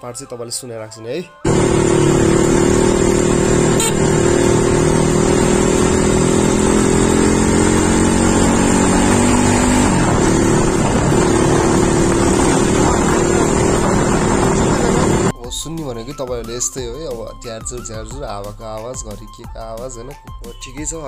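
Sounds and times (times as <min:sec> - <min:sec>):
dirt bike engine running: 0:01.5 - 0:15.3
wind buffeting microphone: 0:09.8 - 0:15.3.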